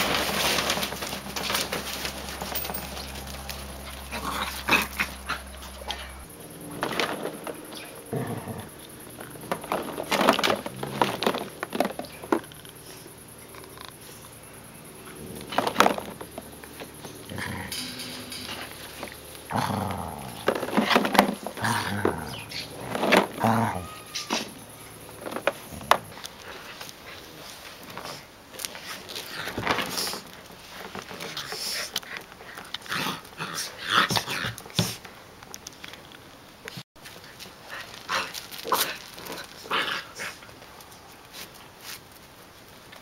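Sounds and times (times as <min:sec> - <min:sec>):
puppies play growling: 0:00.0 - 0:35.1, 0:37.2 - 0:42.0
plastic balls rattling: 0:09.4 - 0:12.6.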